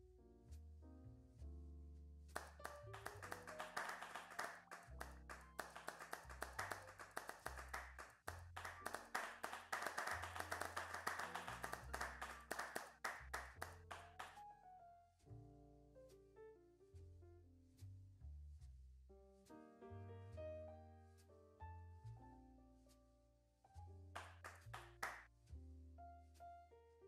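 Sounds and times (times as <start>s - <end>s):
applause: 2.4s - 14.4s, 24.2s - 25.2s.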